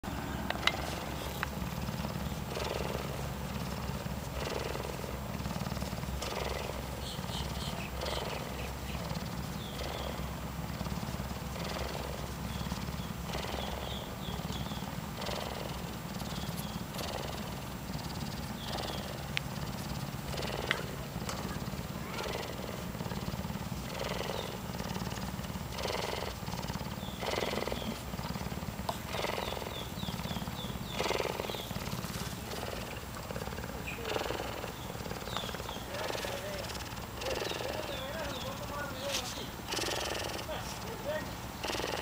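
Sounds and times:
cougar purring: 0:00.0 - 0:42.0.

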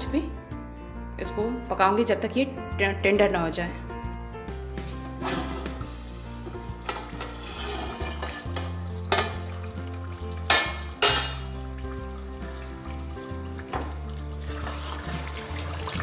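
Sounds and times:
background music with bass: 0:00.0 - 0:16.0
curry simmering and sizzling: 0:05.1 - 0:16.0
metal pot lid knocks: 0:08.1 - 0:09.5, 0:10.5 - 0:11.5.

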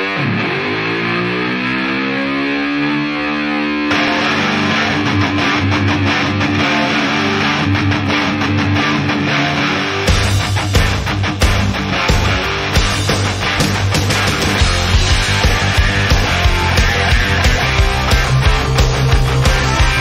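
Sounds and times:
electric guitar note bending: 0:00.0 - 0:20.0
drums: 0:09.9 - 0:20.0.

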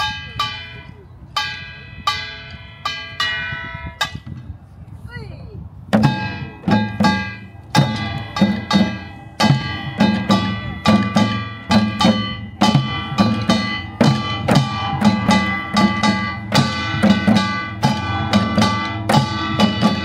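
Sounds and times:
drums playing driving rhythm: 0:05.9 - 0:20.0.

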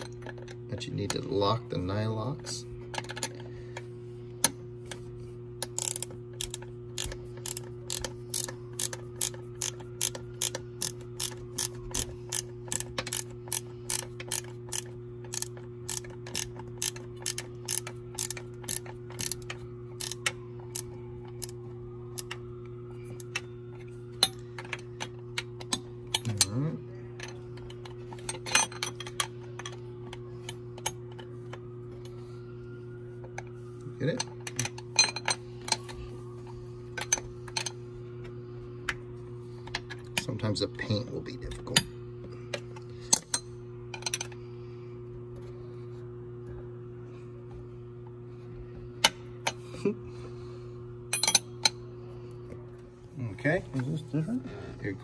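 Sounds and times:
steady low hum: 0:00.0 - 0:55.0
ratcheting wrench clicking: 0:05.6 - 0:21.5.

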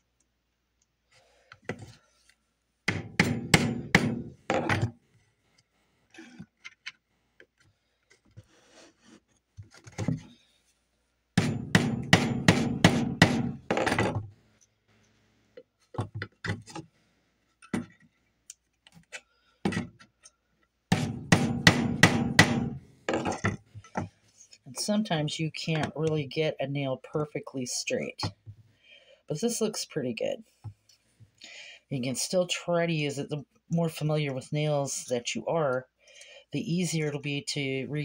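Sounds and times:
hammer striking nail: 0:02.9 - 0:04.8, 0:11.4 - 0:14.2, 0:20.9 - 0:23.4.

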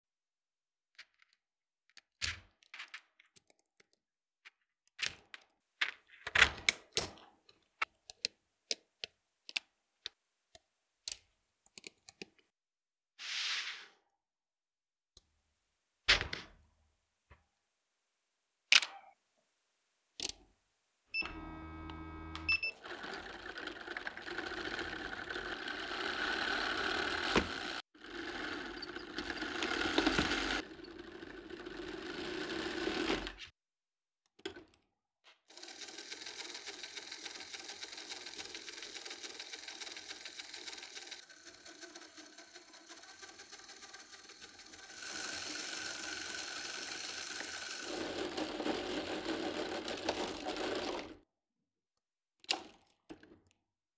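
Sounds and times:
plastic toy wheels rattling: 0:22.8 - 0:33.4, 0:35.5 - 0:51.2.

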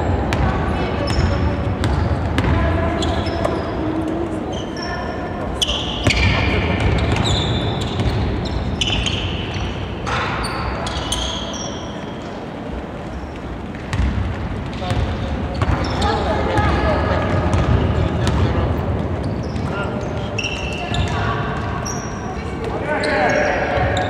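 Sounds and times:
players' voices: 0:00.0 - 0:24.0
sneakers squeaking: 0:00.0 - 0:24.0
basketball bouncing: 0:00.3 - 0:03.6, 0:13.7 - 0:18.6.

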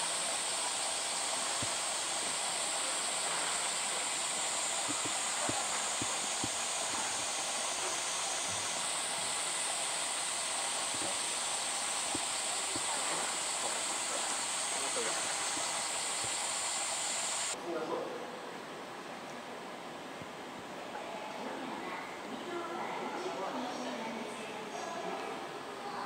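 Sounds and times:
cicada chorus drone: 0:00.0 - 0:17.6.

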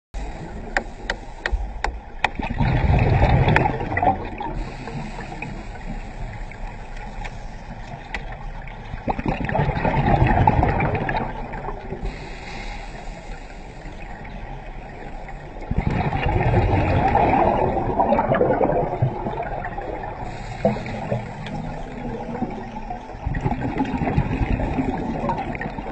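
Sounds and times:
exhaled bubbles from regulator: 0:00.2 - 0:25.9
steady underwater hiss: 0:00.2 - 0:25.9.

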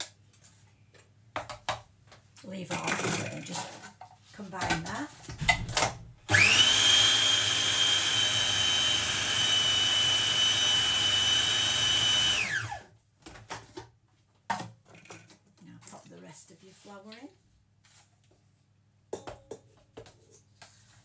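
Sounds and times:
food processor motor whining: 0:06.3 - 0:12.9.

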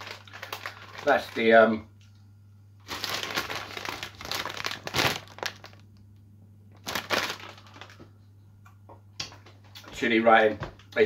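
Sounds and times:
crisp packet crinkling: 0:00.0 - 0:01.6, 0:02.8 - 0:06.0, 0:06.8 - 0:08.0.

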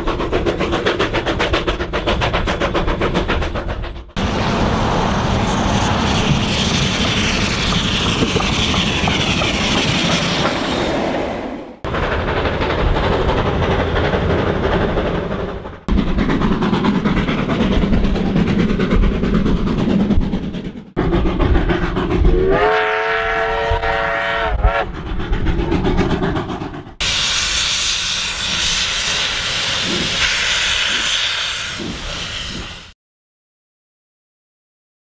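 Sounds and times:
rail noise: 0:00.0 - 0:33.0
steam locomotive running: 0:00.0 - 0:33.0
steam whistle blowing: 0:22.3 - 0:24.9.

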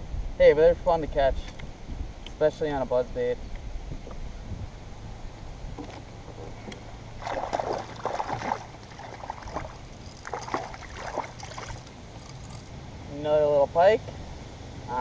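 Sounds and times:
fish splashing in water: 0:07.2 - 0:12.7.

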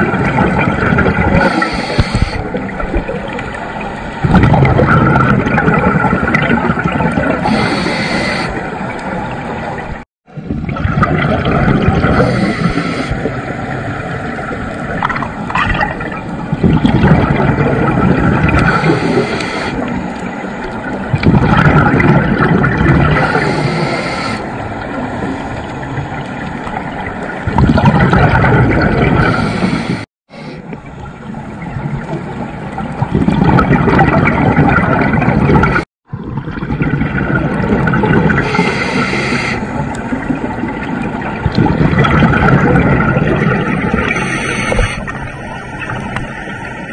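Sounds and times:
underwater exhaled air bubbling: 0:00.0 - 0:46.9
inhaled breath through regulator: 0:01.3 - 0:02.6, 0:07.4 - 0:08.6, 0:12.0 - 0:13.3, 0:18.6 - 0:19.9, 0:23.2 - 0:24.5, 0:29.2 - 0:30.7, 0:38.4 - 0:39.8, 0:44.0 - 0:45.2.

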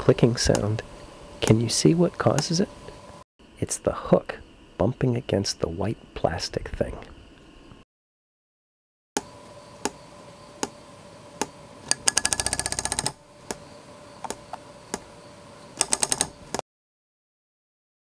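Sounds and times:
propeller shaft clicking: 0:11.8 - 0:13.6.

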